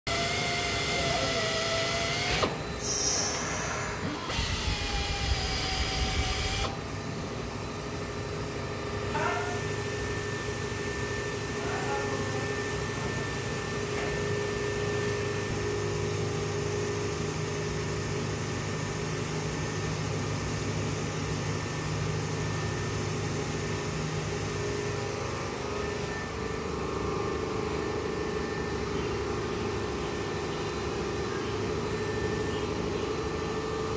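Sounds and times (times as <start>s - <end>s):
pneumatic tool whining: 0.1s - 6.9s.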